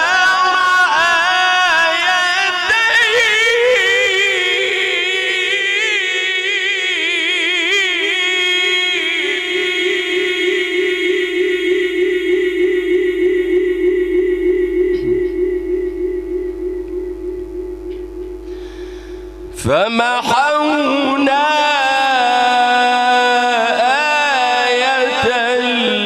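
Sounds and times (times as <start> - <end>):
man reciting melodically: 0.0 - 13.6, 19.5 - 26.0.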